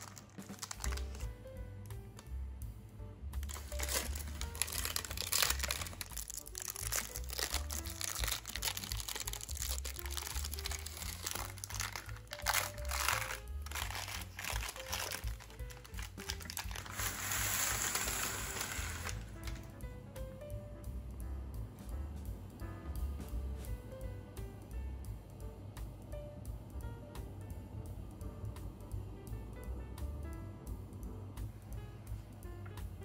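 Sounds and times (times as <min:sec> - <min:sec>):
baking paper crinkling: 0:00.0 - 0:01.3, 0:03.4 - 0:19.7
background music: 0:00.0 - 0:33.0.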